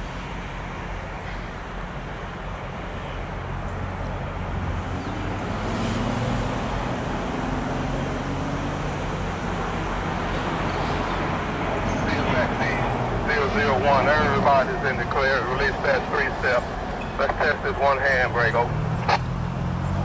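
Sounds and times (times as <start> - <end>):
diesel locomotives idling: 0.0 - 20.0.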